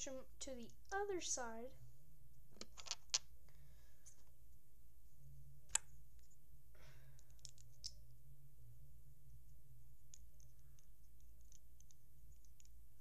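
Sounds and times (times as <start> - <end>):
plastic bricks clicking together: 2.6 - 3.3, 7.2 - 8.0.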